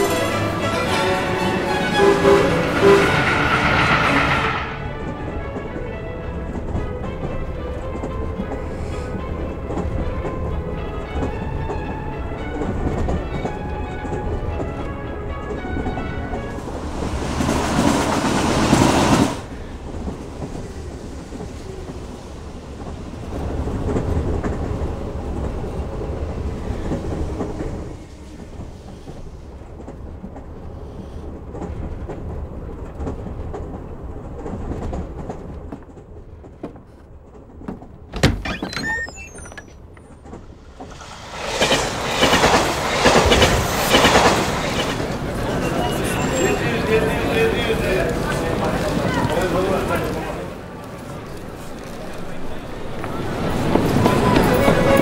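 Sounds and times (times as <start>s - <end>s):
train rumble with wheel clatter: 0.0s - 55.0s
brief squeak: 38.3s - 40.2s.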